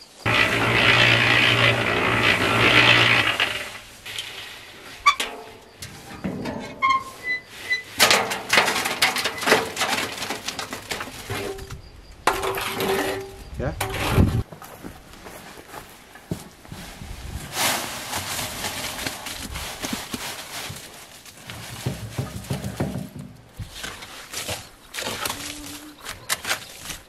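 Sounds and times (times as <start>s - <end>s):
wet concrete sliding into wheelbarrow: 0.2s - 11.6s, 12.3s - 14.4s
cement mixer drum tumbling: 0.2s - 14.5s, 17.5s - 23.6s.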